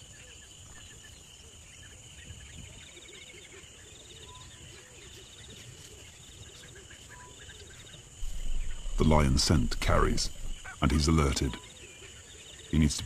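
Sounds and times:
bird chirps: 0.0 - 13.0
insects trilling: 0.0 - 13.0
soft low repeated calls: 8.2 - 11.7.

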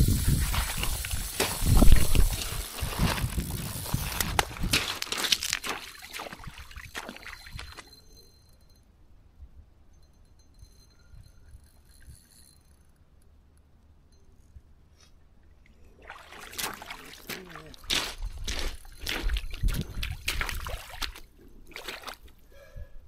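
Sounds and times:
river water splashing: 0.2 - 7.9, 15.9 - 22.2.

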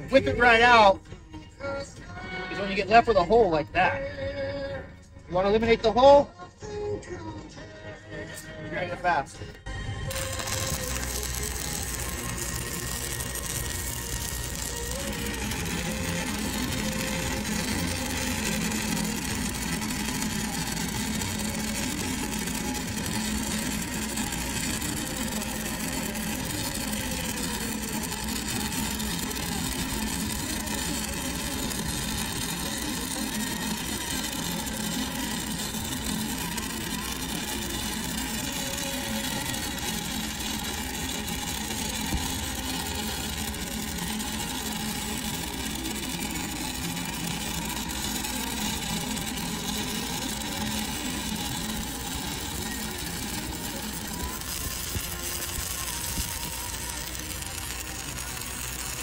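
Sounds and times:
welding arc burning: 10.1 - 59.0.

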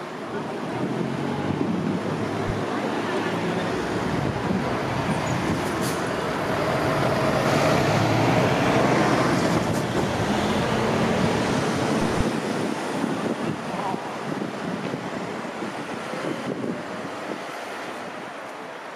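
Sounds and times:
vehicles passing close by: 0.0 - 18.9.

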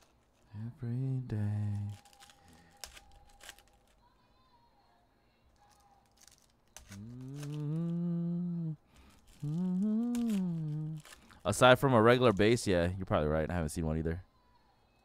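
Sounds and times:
man humming: 0.6 - 2.1, 6.9 - 11.2.

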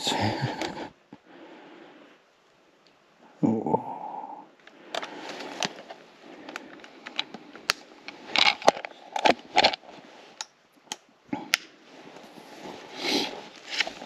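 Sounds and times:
scraping rustles: 11.9 - 14.0.

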